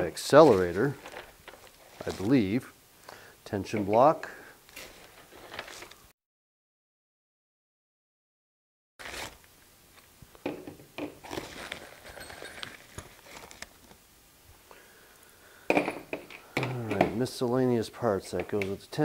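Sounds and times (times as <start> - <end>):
plastic bag crinkling: 0.0 - 2.6, 4.7 - 6.0, 11.1 - 14.0.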